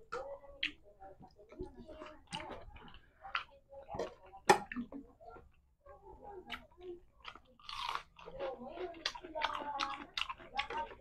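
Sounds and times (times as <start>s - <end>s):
person chewing: 0.0s - 3.8s, 6.5s - 11.0s.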